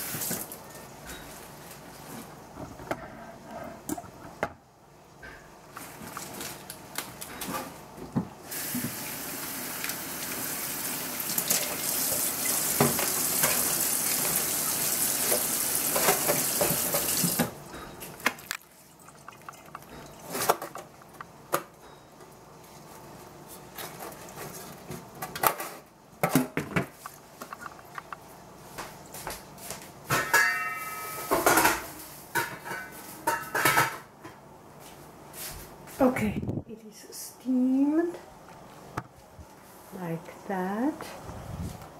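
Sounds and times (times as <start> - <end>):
metal pot clattering: 30.1 - 31.8
metallic ring: 30.2 - 31.5.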